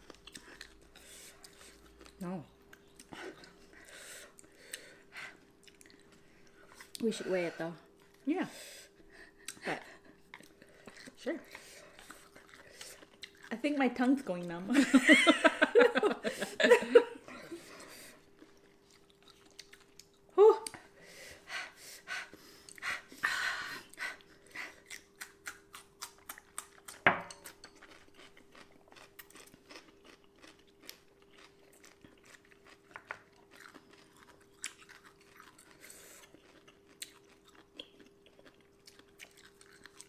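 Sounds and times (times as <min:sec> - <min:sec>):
chewing pickled ginger: 0:00.0 - 0:07.1, 0:09.3 - 0:14.5, 0:17.6 - 0:20.8, 0:23.9 - 0:40.0.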